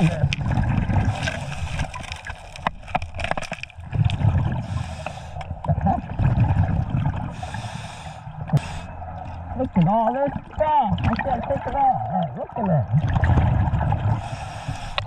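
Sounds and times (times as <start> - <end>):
exhaled air bubbling underwater: 0.0 - 15.0.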